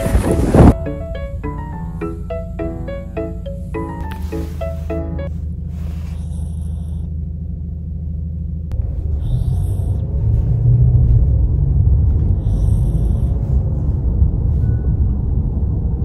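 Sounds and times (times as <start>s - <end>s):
dog snoring: 6.1s - 7.1s, 12.4s - 13.3s.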